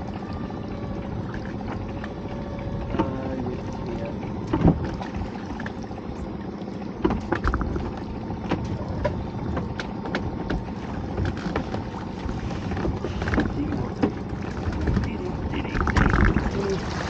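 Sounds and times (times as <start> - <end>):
water splashing against dinghy: 0.0 - 17.0
wind on microphone: 10.3 - 17.0.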